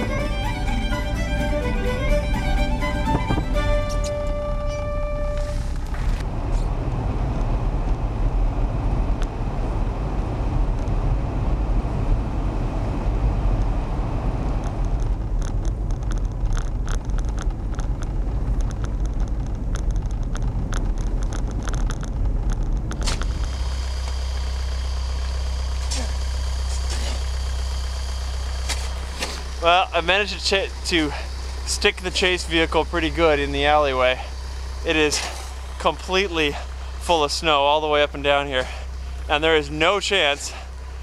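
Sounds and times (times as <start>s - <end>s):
vehicle engine idling: 0.0s - 41.0s
wind and road noise: 0.0s - 41.0s
sharp clicks: 14.6s - 24.2s
snow being dug by hand: 25.8s - 27.4s, 28.5s - 30.3s, 34.9s - 37.5s.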